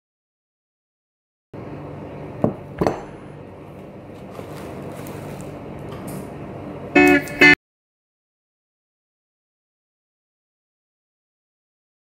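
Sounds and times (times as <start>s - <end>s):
kitchen hum: 1.6s - 7.6s.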